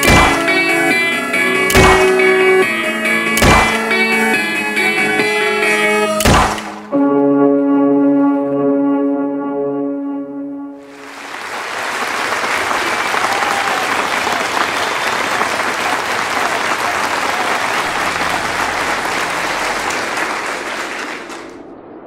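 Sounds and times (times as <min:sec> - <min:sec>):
audience applauding: 0:10.8 - 0:21.7.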